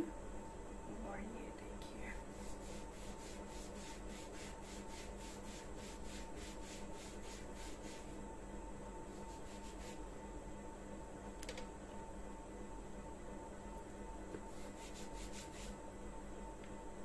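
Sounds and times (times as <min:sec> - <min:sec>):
hand rubbing wax strip on skin: 0:02.3 - 0:08.2, 0:09.1 - 0:10.0, 0:14.5 - 0:15.8.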